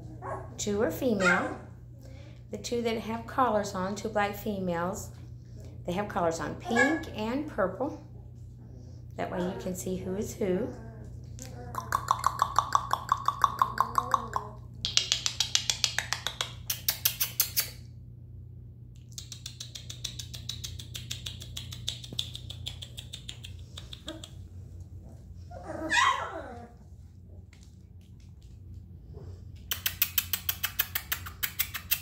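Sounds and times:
steady low hum: 0.0 - 32.0
puppy whining: 10.4 - 12.6, 22.0 - 27.4
puppies squeaking: 25.5 - 26.7.

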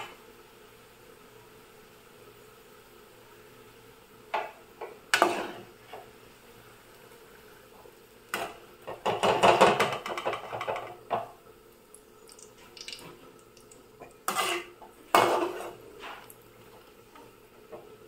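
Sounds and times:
metal skimmer scraping metal pan: 14.3 - 16.3.

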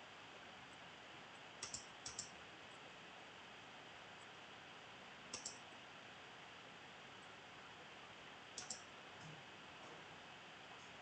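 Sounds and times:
computer mouse clicks: 1.6 - 2.4, 5.3 - 5.6, 8.6 - 8.9.

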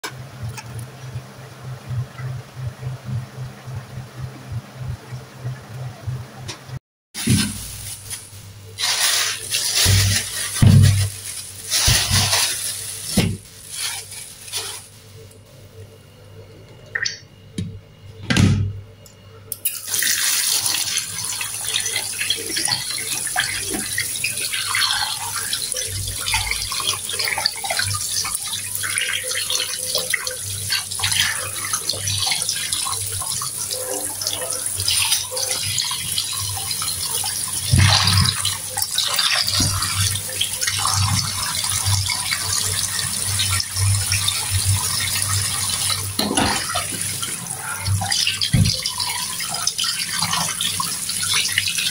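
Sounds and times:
hands rubbing and rinsing fish: 7.2 - 15.5, 19.8 - 51.9
tap water running into sink: 19.7 - 51.9.

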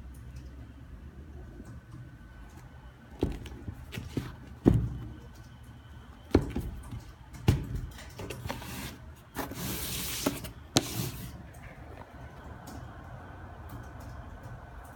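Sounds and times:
cardboard box knocks and bumps: 3.2 - 5.0
scraping rub: 8.4 - 11.4.

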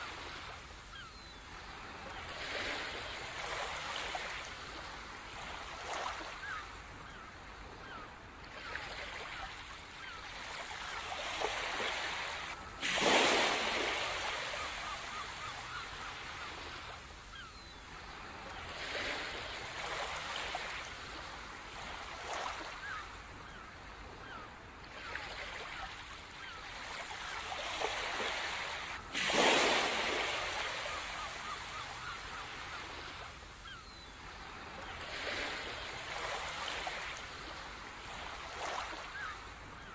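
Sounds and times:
ocean waves washing onto beach: 0.0 - 39.9
large waves breaking: 11.3 - 15.5, 27.7 - 32.1.

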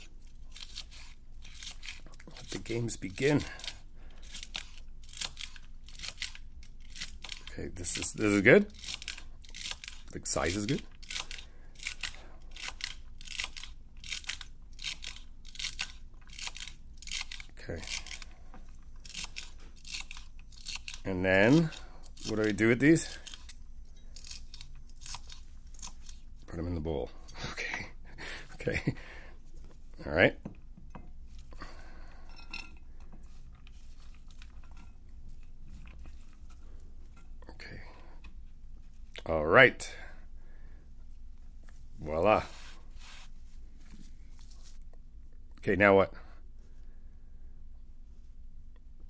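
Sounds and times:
knife slicing celery: 0.0 - 27.6
low steady hum: 0.0 - 49.0.

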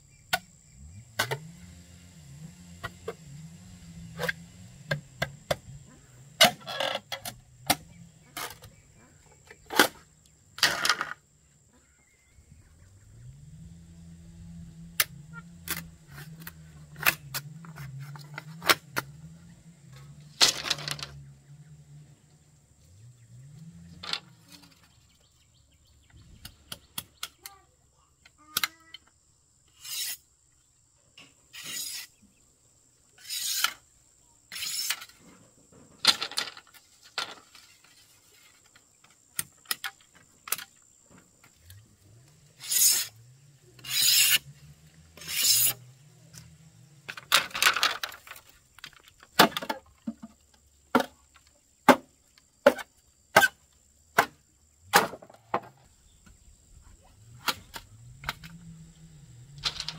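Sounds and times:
rasping scraping strokes: 29.7 - 30.2, 31.5 - 32.2, 33.2 - 33.8, 34.5 - 35.3, 42.4 - 45.9.

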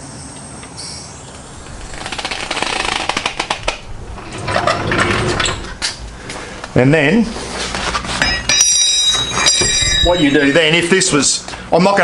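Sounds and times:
wheel clattering under weight: 1.7 - 6.0.

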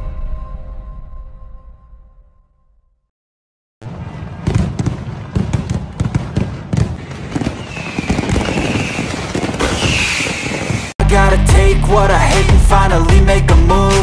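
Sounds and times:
fireworks cracks and bangs: 3.8 - 11.0
high falling whistle: 7.6 - 10.9.

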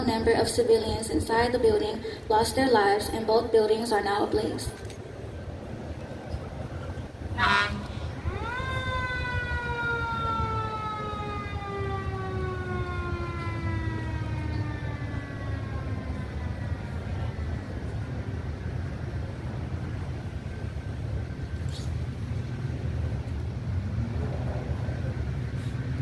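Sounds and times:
low rumble: 4.7 - 26.0
fire truck horn blast: 7.3 - 8.2
fire truck siren winding: 7.4 - 17.0.

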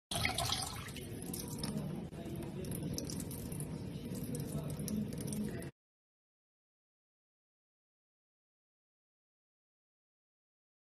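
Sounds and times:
tap water trickling into bowl: 0.1 - 5.7.

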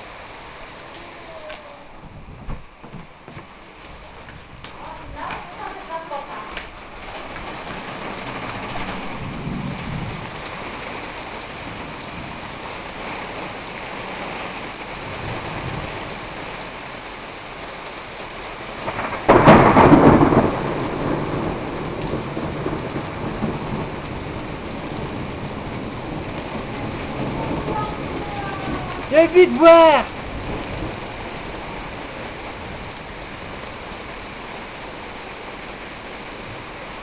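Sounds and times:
heavy rain falling: 0.0 - 37.0
thunderclap rumbling: 1.2 - 13.6, 18.7 - 34.7.

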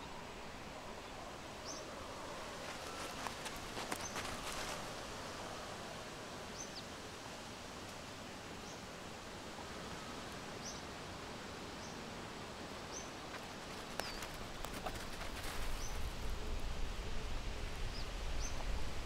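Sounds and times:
outdoor background noise: 0.0 - 19.0
faint clicks and rustles: 2.5 - 5.2, 13.3 - 16.2.

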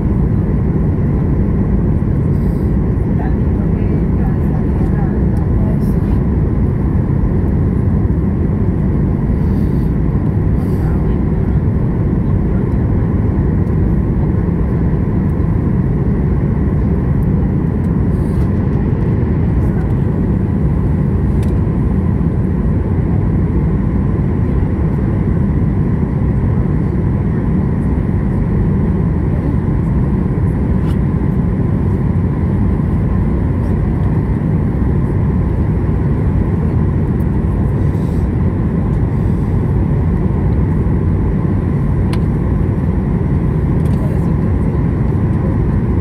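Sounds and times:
airplane cabin engine rush: 0.0 - 46.0.

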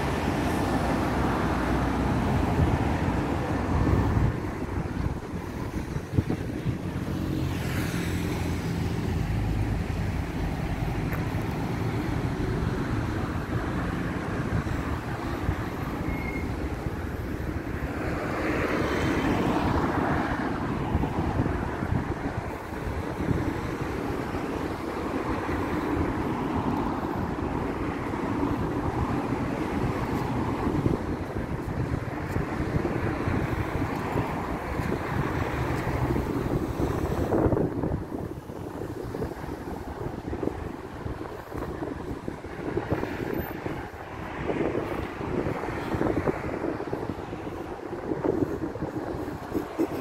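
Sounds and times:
vehicle passing by: 6.2 - 14.6.

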